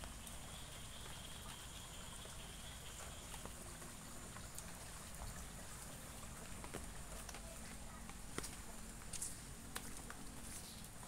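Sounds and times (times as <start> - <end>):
light rain ticking: 0.0 - 11.0
water drips: 0.0 - 11.0.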